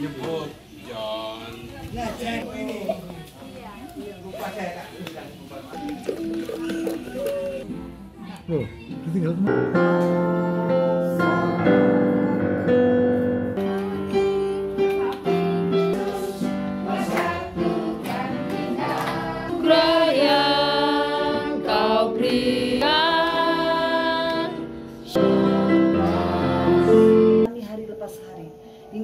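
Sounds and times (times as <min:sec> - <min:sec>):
digital piano: 0:08.9 - 0:29.0
group singing: 0:13.5 - 0:27.5.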